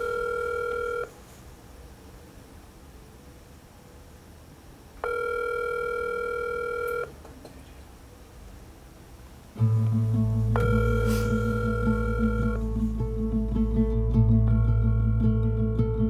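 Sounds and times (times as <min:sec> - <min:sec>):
phone ringback tone: 0:00.0 - 0:01.1, 0:05.0 - 0:07.2, 0:10.4 - 0:13.1, 0:14.5 - 0:15.5
music: 0:09.6 - 0:16.0.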